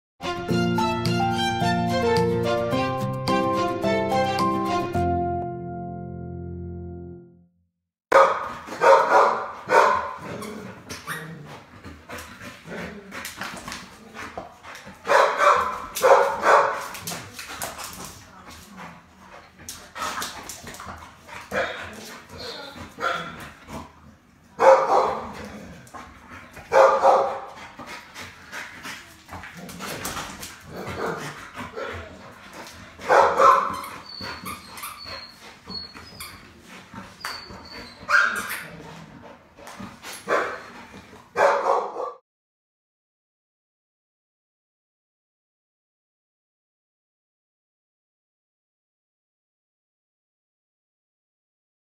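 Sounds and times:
dog barking: 8.1s - 10.2s, 15.1s - 16.9s, 21.5s - 21.8s, 23.0s - 23.4s, 24.6s - 25.3s, 26.7s - 27.5s, 30.9s - 32.0s, 33.1s - 33.8s, 38.1s - 38.5s, 40.3s - 40.6s, 41.3s - 42.2s
dog scuffling and mouthing toy: 15.6s - 23.8s
high toy squeaks: 33.4s - 38.7s.

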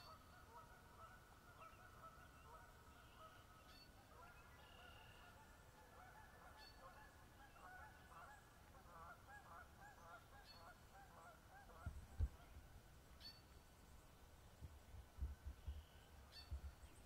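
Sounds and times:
distant geese honking: 0.0s - 13.4s.

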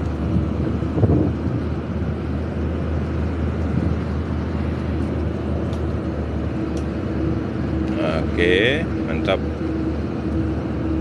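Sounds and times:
boat diesel engine droning: 0.0s - 11.0s
water rushing along hull: 0.0s - 11.0s.

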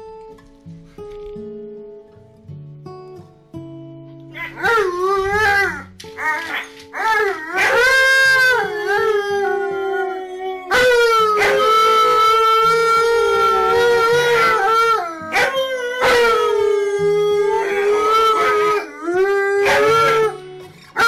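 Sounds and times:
dogs howling: 4.4s - 21.0s.

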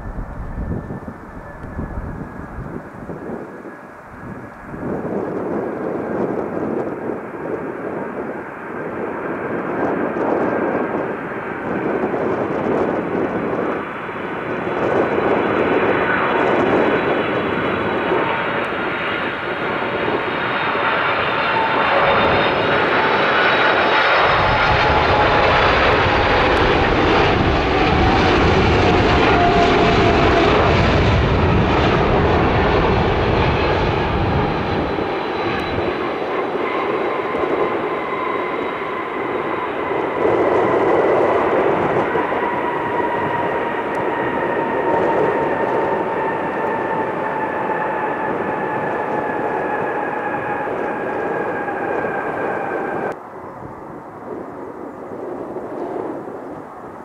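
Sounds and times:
deep rumble: 0.0s - 6.6s, 21.8s - 38.4s
jet engines whining: 0.0s - 57.0s.

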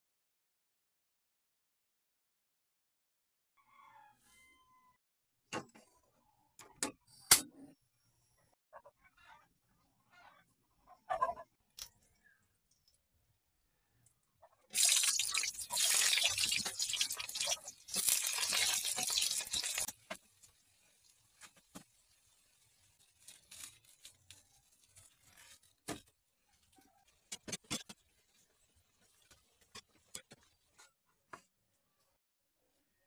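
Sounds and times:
food sizzling in hot oil: 14.7s - 25.5s
metal spatula scraping wok: 14.8s - 20.0s.

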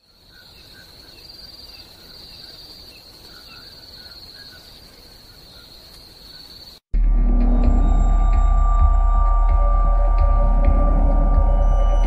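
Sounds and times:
crickets trilling: 0.0s - 6.9s.

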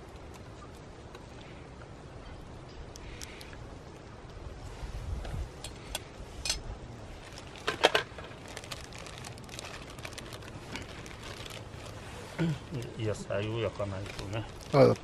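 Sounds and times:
plastic bag crinkling: 7.2s - 12.9s, 13.8s - 15.0s.

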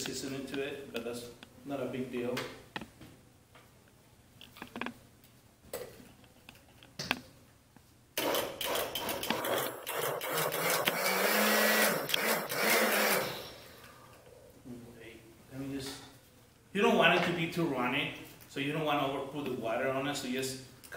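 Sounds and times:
blender running: 8.2s - 13.8s.

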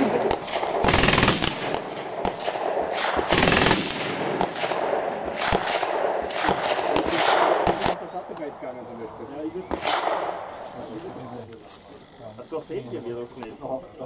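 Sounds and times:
single gunshots cracking: 0.0s - 8.1s, 9.7s - 10.4s
machine gun rapid fire bursts: 0.3s - 8.0s.

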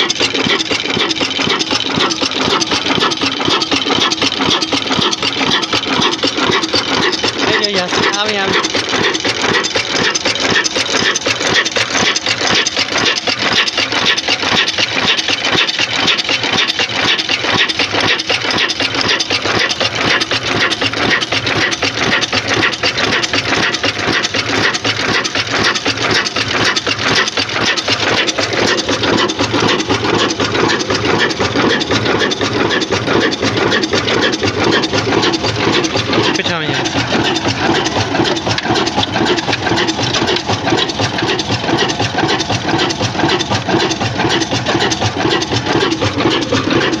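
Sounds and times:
diesel engine running: 0.0s - 47.0s.

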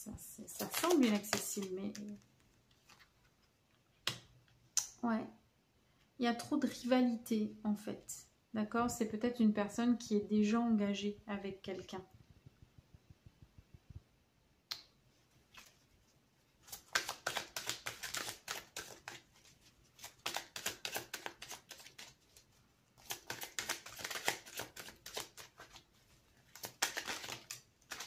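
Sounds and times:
cards shuffling rapidly: 0.5s - 2.2s, 16.6s - 28.0s.

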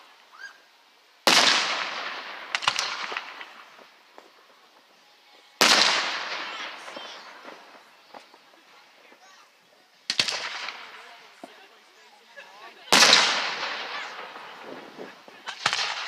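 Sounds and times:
fireworks crackling: 0.0s - 16.0s
fireworks booming: 1.2s - 4.9s, 5.6s - 9.2s, 10.0s - 11.7s, 12.9s - 16.0s.

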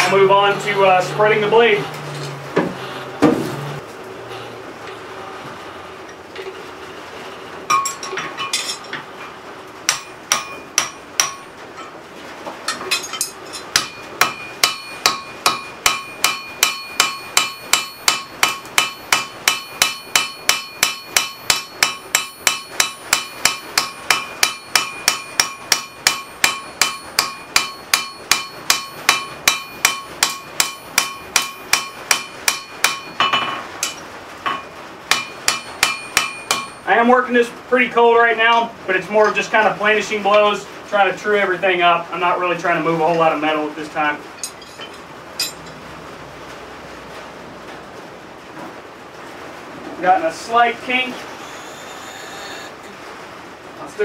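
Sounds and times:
hammer striking metal on anvil: 9.9s - 11.9s, 12.7s - 36.9s, 44.4s - 45.7s.

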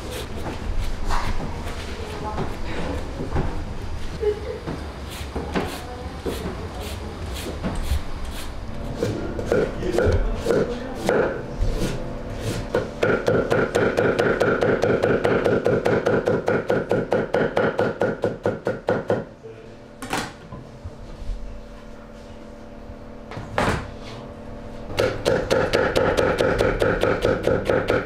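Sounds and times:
knife chopping on wooden board: 12.5s - 19.2s, 25.0s - 28.0s.

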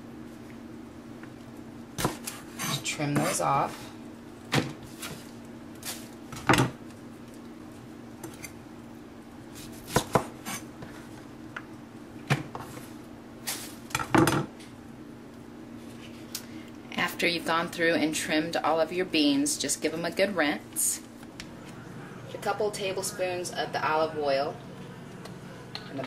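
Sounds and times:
knife chopping on wooden board: 9.9s - 10.3s.

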